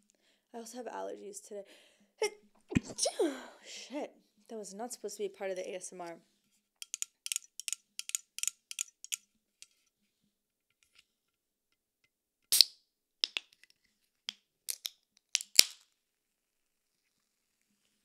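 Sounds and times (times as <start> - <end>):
can pull tab clicking and snapping: 6.8 - 9.2
fingernails tapping on a can: 6.8 - 9.2.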